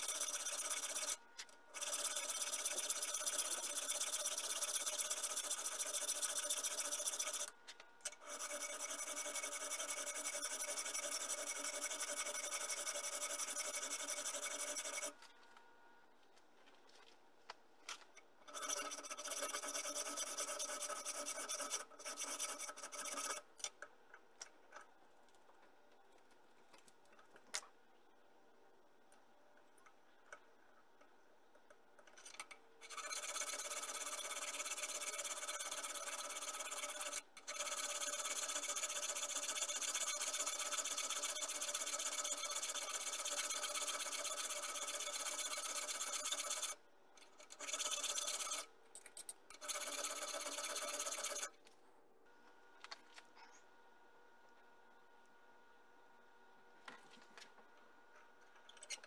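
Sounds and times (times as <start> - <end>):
hand file scraping metal: 1.8 - 7.5, 8.1 - 15.2, 18.5 - 23.4, 32.2 - 46.8, 47.4 - 48.7.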